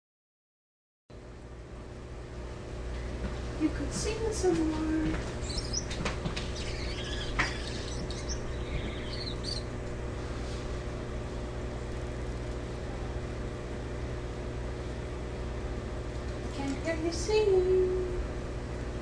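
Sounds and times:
steady low hum: 1.2s - 19.0s
finches chirping: 5.3s - 9.8s
sharp clicks: 5.5s - 9.7s.

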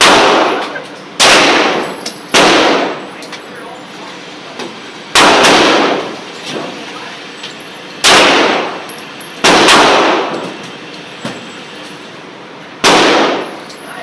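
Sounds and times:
pistol shots echoing indoors: 0.0s - 3.0s, 5.2s - 6.2s, 8.0s - 10.5s, 12.8s - 13.7s.

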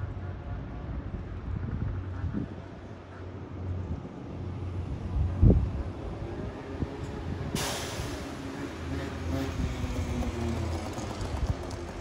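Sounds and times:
bus diesel engine rumbling: 0.0s - 12.0s
air hiss: 7.6s - 8.3s.

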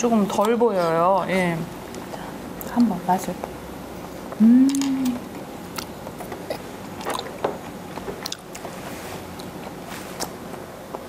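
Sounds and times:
person chewing wetly: 4.6s - 11.0s.

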